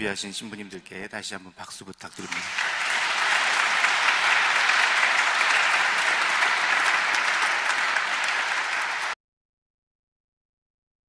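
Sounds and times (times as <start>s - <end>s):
crowd applauding: 2.2s - 9.2s.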